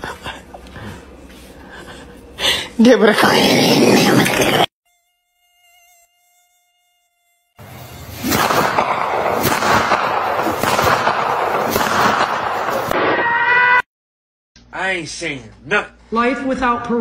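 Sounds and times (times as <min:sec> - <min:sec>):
loud rough mosquito buzzing: 0:03.3 - 0:08.5.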